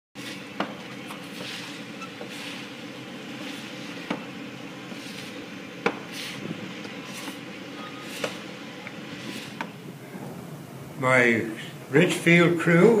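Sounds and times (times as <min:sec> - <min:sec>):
roofing scraping: 0:00.2 - 0:10.4
diesel engine running: 0:00.2 - 0:11.0.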